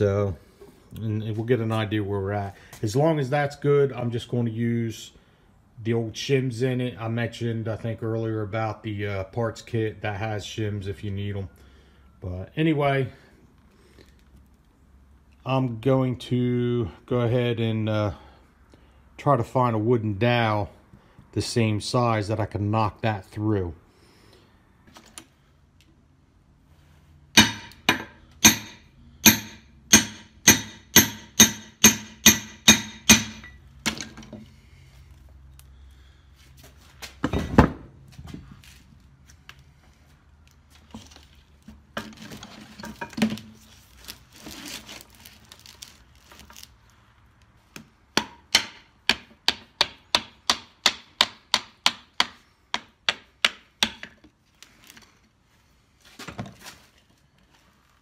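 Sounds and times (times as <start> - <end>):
hammer strikes: 27.4 - 34.0, 48.2 - 54.2.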